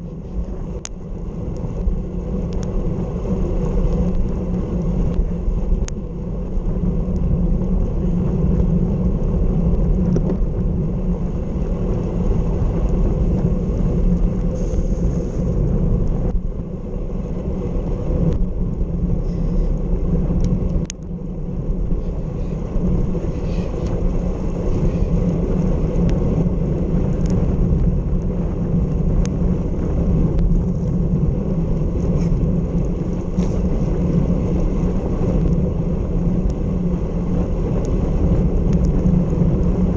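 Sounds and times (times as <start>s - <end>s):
tyre noise on wet road: 0.0s - 39.9s
wind rush on microphone: 0.0s - 39.9s.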